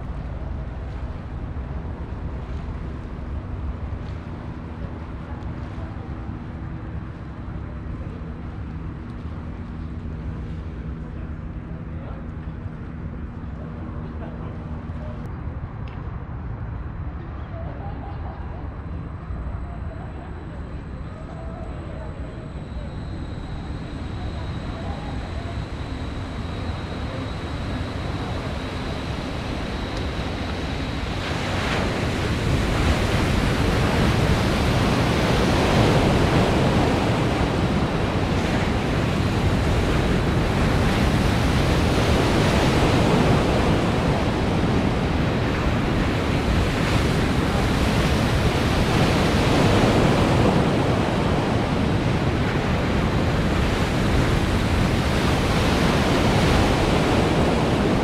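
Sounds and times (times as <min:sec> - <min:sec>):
wind on microphone: 0:00.0 - 0:58.0
waves breaking and rushing: 0:22.6 - 0:58.0.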